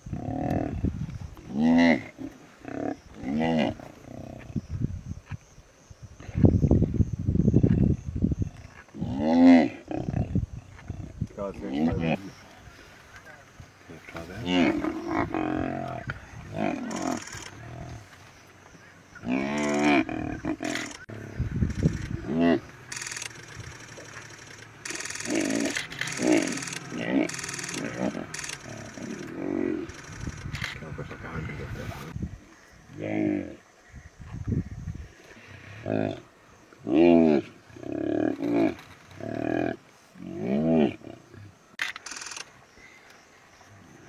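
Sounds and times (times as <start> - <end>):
lion growling and moaning: 0.1 - 4.6, 14.4 - 18.1, 19.2 - 22.8, 24.8 - 31.8, 32.9 - 33.6, 35.7 - 41.5
young hippo moaning calls: 19.2 - 30.4.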